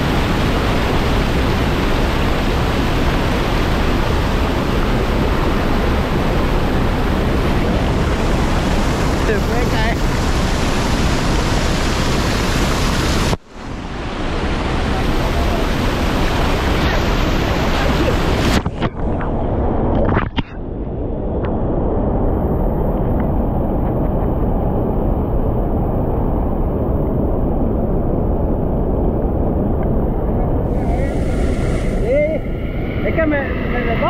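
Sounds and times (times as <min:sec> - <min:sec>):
rushing river water: 0:00.0 - 0:20.5, 0:30.2 - 0:34.0.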